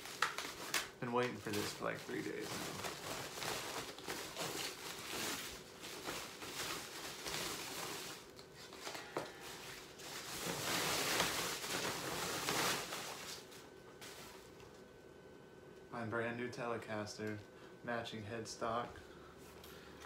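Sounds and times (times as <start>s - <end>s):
packing wrap rustling: 0.0s - 14.6s.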